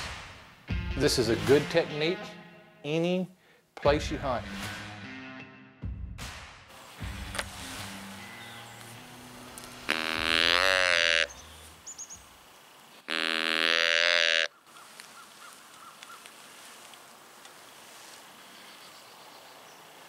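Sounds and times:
faint woodland background: 0:00.0 - 0:04.6, 0:06.7 - 0:20.0
deer call blown by mouth: 0:09.9 - 0:11.3, 0:13.1 - 0:14.5.

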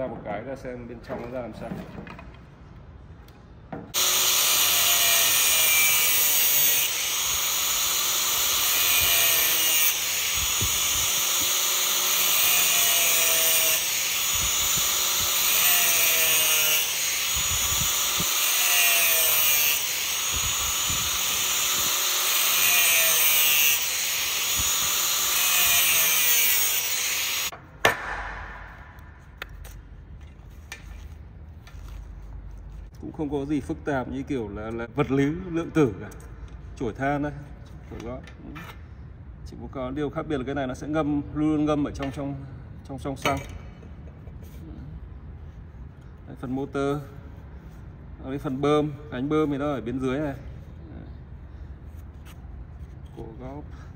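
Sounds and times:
angle grinder cutting metal: 0:04.0 - 0:27.5.

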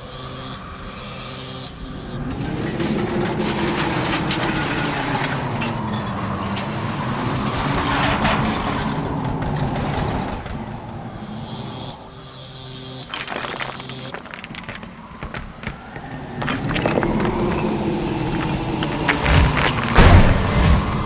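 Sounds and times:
flying debris cracking: 0:13.0 - 0:21.0
roaring howling wind: 0:14.5 - 0:21.0.

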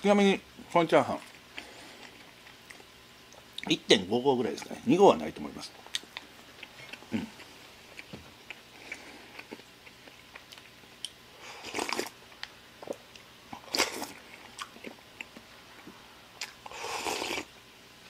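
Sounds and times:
chewing with mouth clicks: 0:05.8 - 0:17.5
soup slurping: 0:16.7 - 0:17.5.

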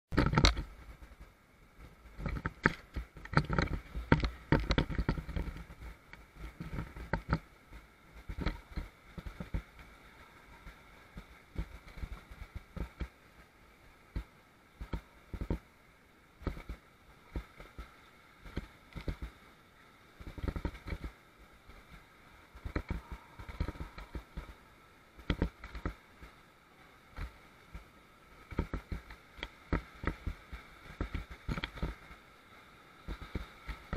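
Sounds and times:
knocks and thumps: 0:00.1 - 0:00.7, 0:02.2 - 0:05.8
rushing water: 0:00.1 - 0:33.9.

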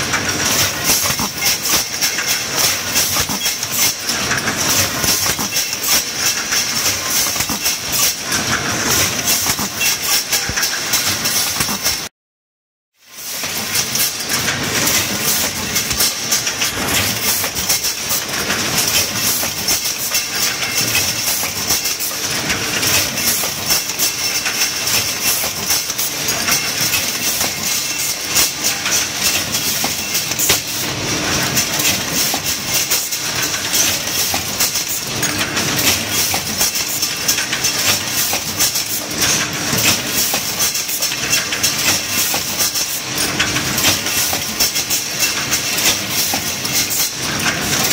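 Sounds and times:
steel tubes clattering and clicking: 0:00.1 - 0:12.1, 0:13.4 - 0:47.9
steady machine noise: 0:13.2 - 0:47.9.

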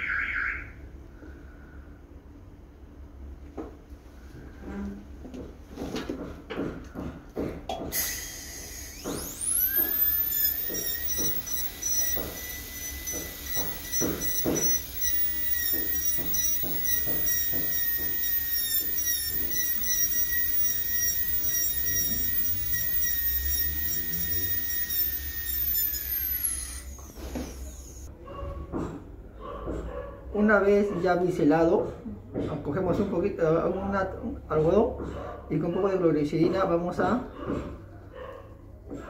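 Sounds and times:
dental drill whining: 0:08.0 - 0:28.1.

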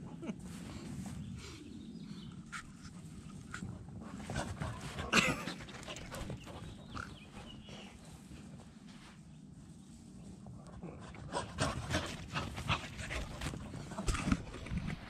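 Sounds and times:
dogs panting: 0:02.2 - 0:08.6, 0:10.6 - 0:15.0.

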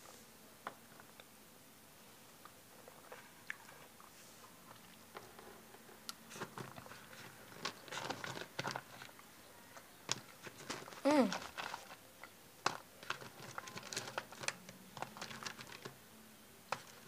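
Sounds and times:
chewing gummy candies: 0:09.8 - 0:16.0.

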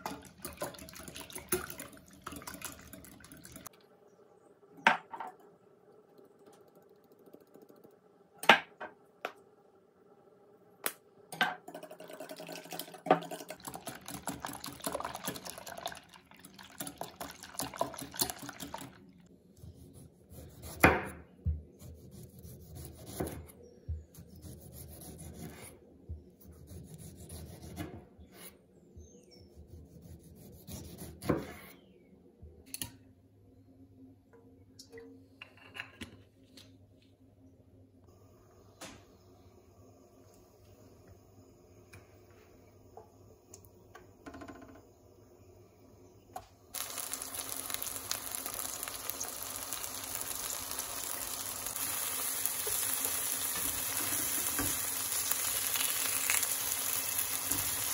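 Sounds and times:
liquid sounds: 0:00.0 - 0:04.0, 0:11.7 - 0:19.3.

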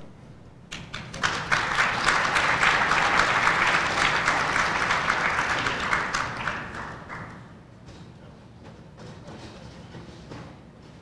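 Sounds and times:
audience applauding: 0:00.7 - 0:07.4.

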